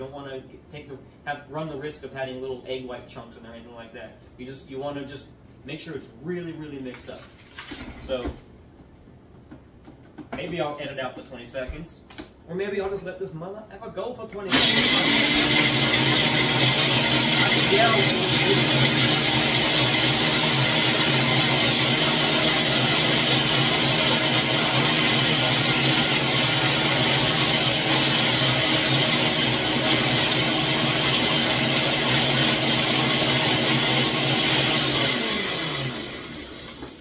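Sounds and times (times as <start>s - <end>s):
blender crushing ice: 14.5s - 37.0s.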